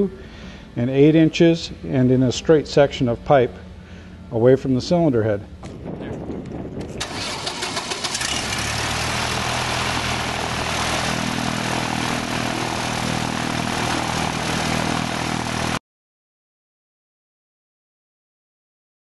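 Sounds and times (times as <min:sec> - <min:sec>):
aircraft engine idling: 0:06.5 - 0:15.8.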